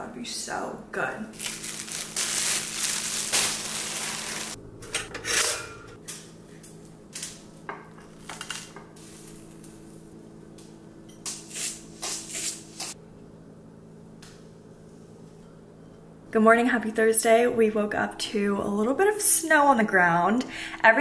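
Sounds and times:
plastic bag rustling: 1.3s - 4.6s
faint steady hum: 12.9s - 21.0s.

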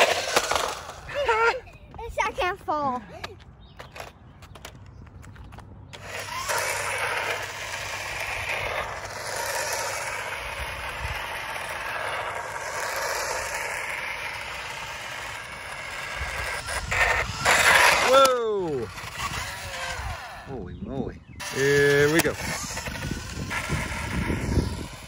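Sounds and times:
toy motorcycle motor whirring: 0.0s - 1.6s, 5.9s - 20.6s, 21.4s - 25.0s
tyre noise on asphalt: 0.0s - 20.5s, 21.4s - 25.0s.

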